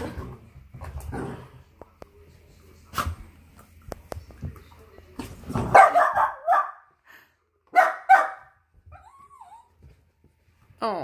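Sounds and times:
puppies barking: 5.7 - 6.8
puppy whining: 8.9 - 9.8.

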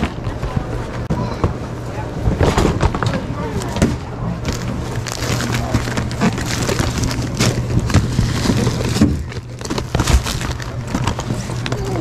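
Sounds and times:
steady low hum: 0.0 - 12.0
packages rustling in shopping cart: 4.4 - 12.0.

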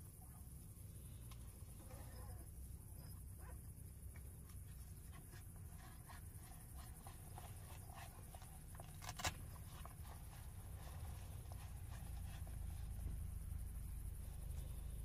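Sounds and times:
low steady rumble: 0.0 - 15.0
faint rustling: 0.1 - 15.0.

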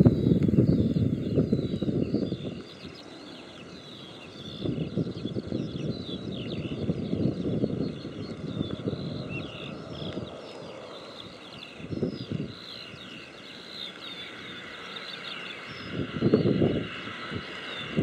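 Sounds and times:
low gusty rumble: 0.0 - 3.0, 4.3 - 12.7, 15.7 - 18.0
birds chirping: 0.0 - 18.0.

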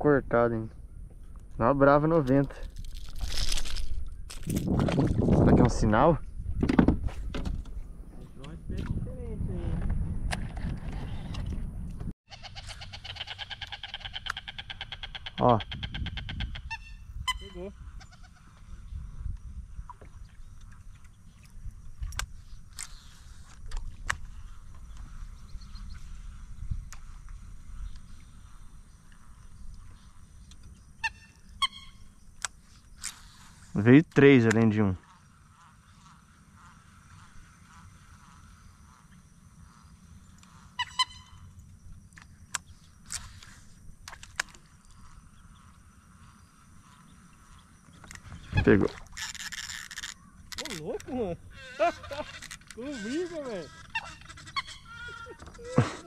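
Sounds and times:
faint wildlife background: 0.0 - 56.0
water sounds: 46.9 - 56.0.

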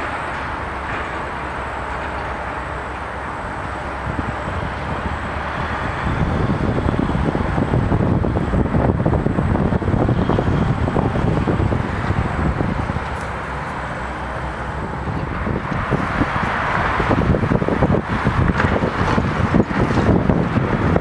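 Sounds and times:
crane engine working under load: 0.0 - 21.0
dense crackling noise: 0.0 - 21.0
wind buffeting microphone: 0.0 - 21.0.

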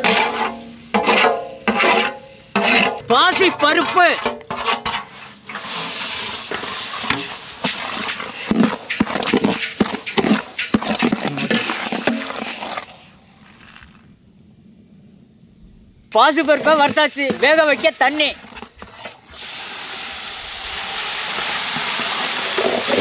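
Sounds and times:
ladle scraping against a pot: 0.0 - 13.0, 16.5 - 19.4
grains pouring into a pot: 5.1 - 14.1, 16.4 - 23.0.

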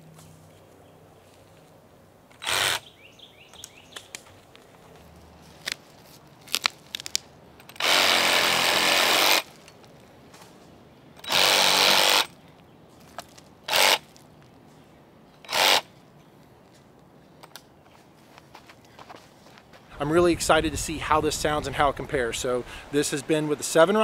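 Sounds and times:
reciprocating saw cutting roots: 2.3 - 2.9, 6.4 - 9.6, 11.2 - 12.4, 13.6 - 14.1, 15.4 - 15.9.

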